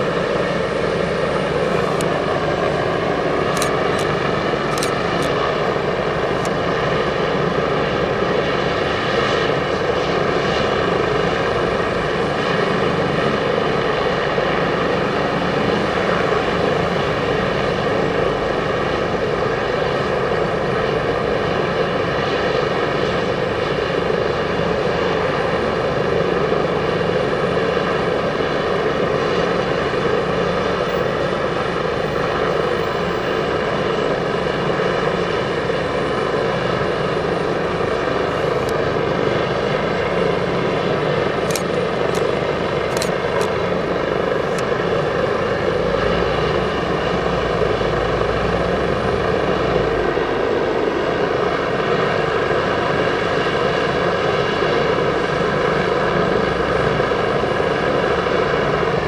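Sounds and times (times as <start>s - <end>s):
helicopter rotor noise: 0.0s - 59.0s
helicopter turbine whine: 0.0s - 59.0s.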